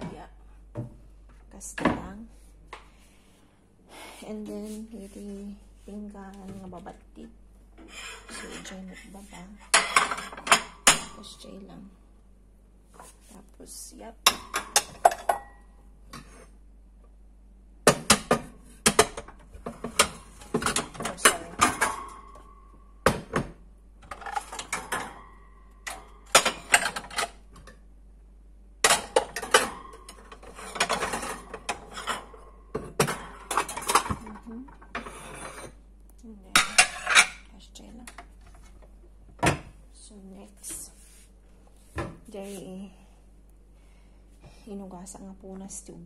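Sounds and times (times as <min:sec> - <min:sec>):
ceramic plates clinking: 0:18.0 - 0:23.4, 0:24.0 - 0:27.4, 0:28.8 - 0:35.8, 0:36.6 - 0:37.4.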